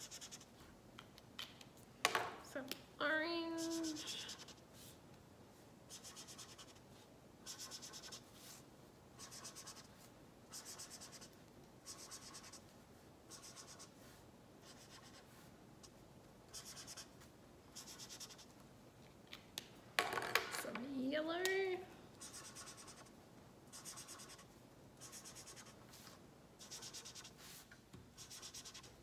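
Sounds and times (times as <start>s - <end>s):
marker scrubbing on paper: 0.0s - 0.6s, 3.6s - 5.0s, 5.9s - 8.6s, 9.2s - 12.7s, 13.3s - 18.5s, 22.2s - 29.0s.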